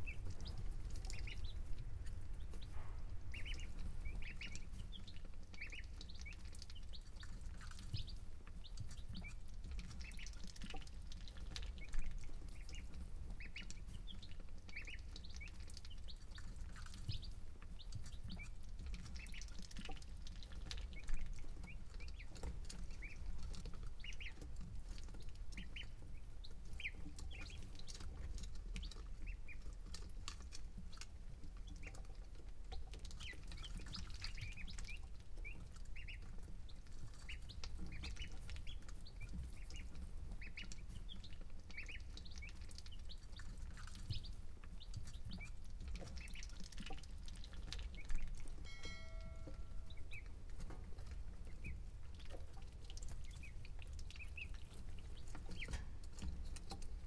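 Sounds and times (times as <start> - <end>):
steady low rumble: 0.0 - 7.0
chicks and ducklings peeping: 0.0 - 57.0.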